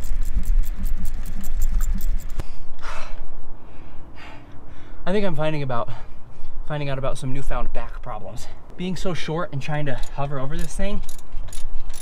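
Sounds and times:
socket ratchet clicking: 0.0 - 2.4, 10.0 - 12.0
heavy breath: 2.4 - 5.0.

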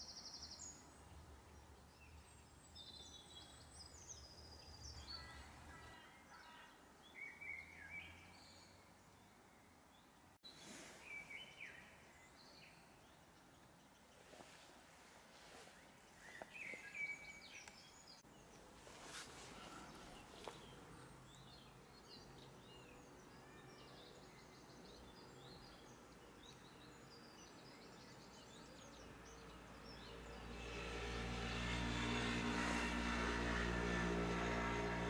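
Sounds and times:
songbirds chirping and trilling: 0.0 - 35.0.

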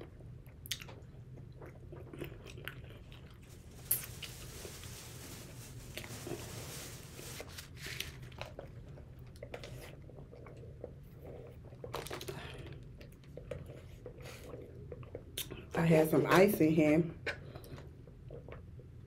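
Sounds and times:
chewing and crunching: 0.0 - 4.3, 7.7 - 15.8, 17.2 - 19.0.

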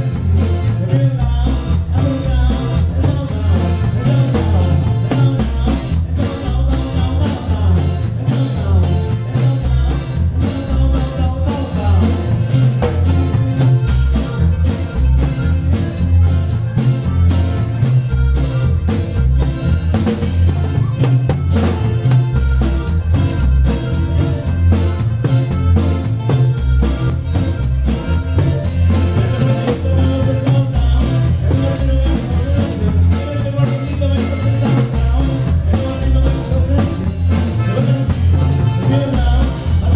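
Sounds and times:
person singing: 0.0 - 13.7, 28.7 - 39.9
band music through pa system: 0.0 - 39.9
bass line: 0.0 - 39.9
drum beat: 0.0 - 39.9
guitar: 0.0 - 39.9.

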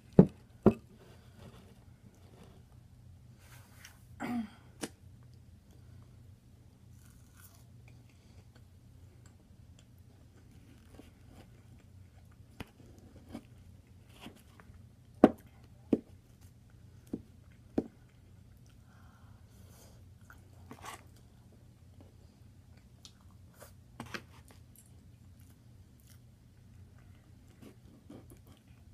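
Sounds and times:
low steady hum: 0.0 - 28.9
chewing and crunching food: 6.9 - 14.9, 20.0 - 23.6, 24.4 - 28.9.

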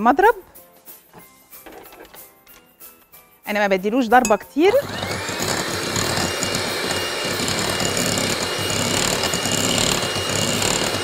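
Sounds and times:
electric hand mixer running: 4.7 - 11.0.

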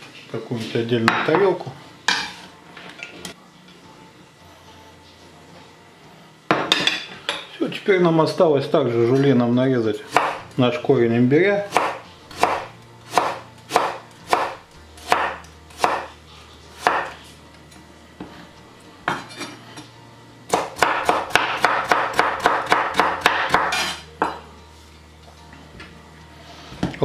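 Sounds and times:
knife chopping on cutting board: 10.1 - 10.4, 11.7 - 16.2, 16.8 - 17.2, 20.5 - 24.4.

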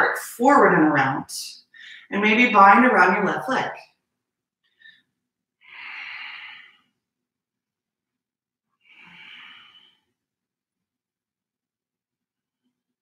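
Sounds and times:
person breathing: 1.7 - 2.1, 4.6 - 7.0, 8.8 - 10.2.

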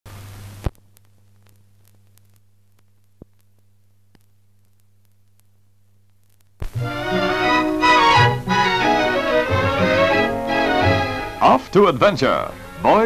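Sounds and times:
film crackles and clicks: 0.1 - 8.9
low mains hum: 0.1 - 13.0
small pops: 0.6 - 6.8.

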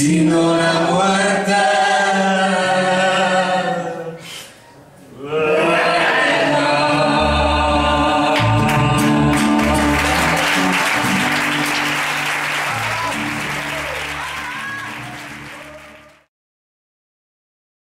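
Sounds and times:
people singing: 0.0 - 4.3, 5.2 - 11.2
acoustic guitars: 7.0 - 16.2
audience applause: 8.6 - 16.3.

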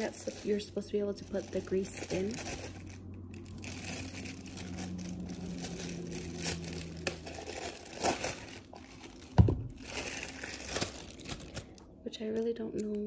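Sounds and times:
plastic bag crinkling: 0.0 - 12.5.

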